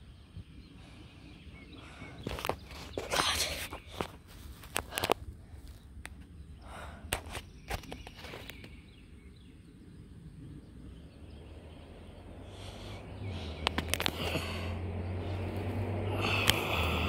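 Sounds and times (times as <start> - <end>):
low rumble: 9.2 - 17.0.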